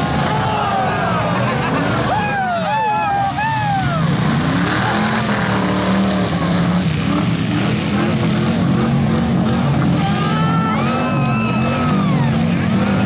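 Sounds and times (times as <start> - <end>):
voices calling out: 0.0 - 7.2, 9.8 - 13.0
car engines revving: 0.0 - 13.0.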